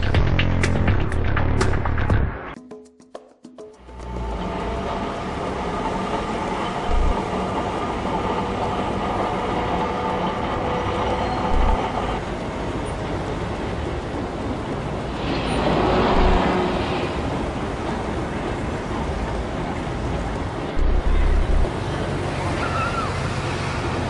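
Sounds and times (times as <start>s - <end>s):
loud vehicle passing: 3.8s - 12.8s, 14.9s - 18.4s
city street traffic: 3.8s - 24.0s.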